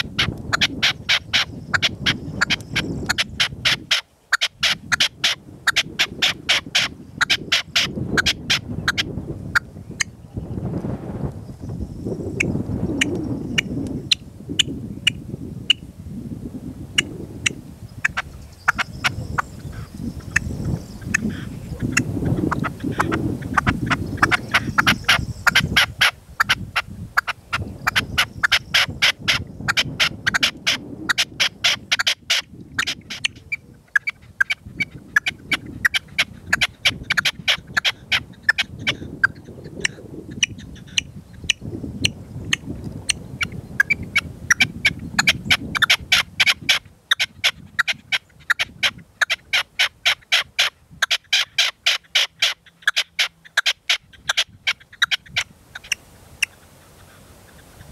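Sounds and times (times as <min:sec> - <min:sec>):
partridge calling: 0:00.0 - 0:10.5, 0:17.0 - 0:57.9
wind rumbling on microphone: 0:00.0 - 0:57.9.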